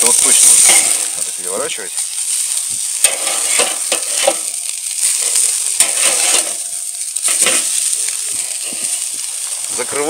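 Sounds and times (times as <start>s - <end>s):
burger patties sizzling on grill: 0.0s - 10.0s
metal spatula scraping grate: 0.3s - 1.0s, 3.0s - 9.0s.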